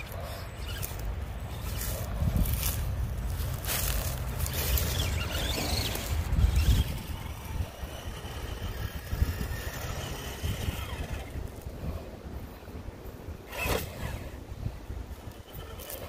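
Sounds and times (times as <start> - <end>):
toy truck motor and gear whine: 0.0 - 16.0
tyres rustling over leaves: 0.1 - 11.8.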